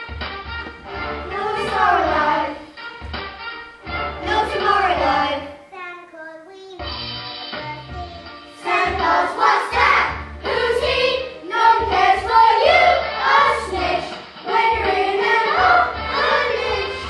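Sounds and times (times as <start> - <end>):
instrumental backing: 0.0 - 17.0
children singing together: 1.3 - 2.7, 4.2 - 5.5, 8.6 - 17.0.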